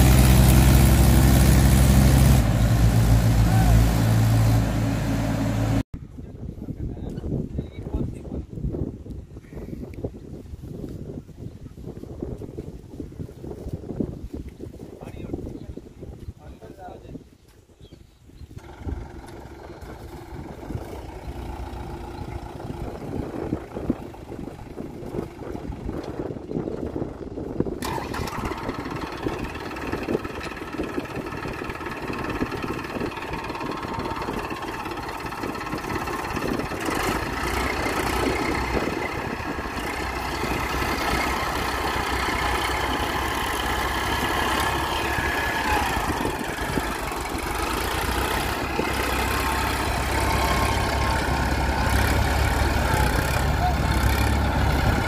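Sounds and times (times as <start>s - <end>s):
diesel tractor engine rumbling: 0.0s - 7.4s, 18.4s - 55.0s.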